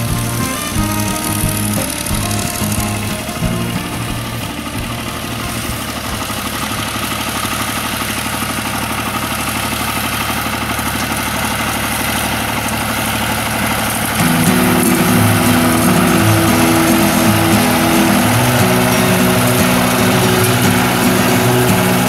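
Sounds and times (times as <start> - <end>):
background music: 0.0 - 6.9, 14.2 - 22.0
tractor diesel engine running: 0.0 - 22.0.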